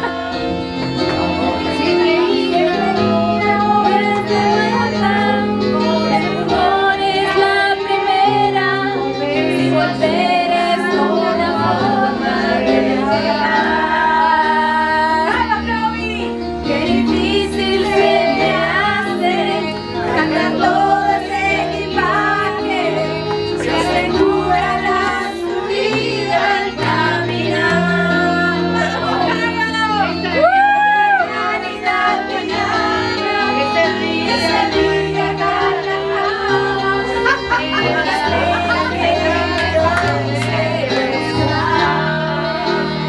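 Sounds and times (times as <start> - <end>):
karaoke music: 0.0 - 43.0
person singing: 0.0 - 43.0.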